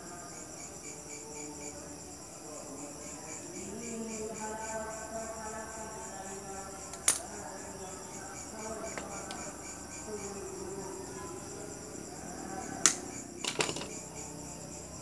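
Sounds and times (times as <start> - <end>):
insects chirping: 0.0 - 15.0
pliers clicking on wire: 6.9 - 7.2.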